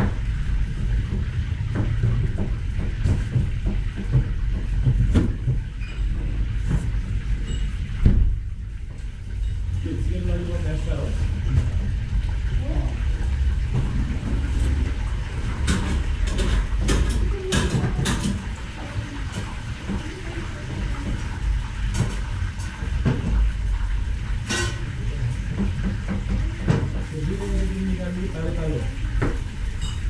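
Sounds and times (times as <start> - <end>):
utensils and dishes clattering: 0.0 - 8.0, 9.3 - 12.0, 12.9 - 30.0
kitchen equipment rumble: 0.0 - 30.0.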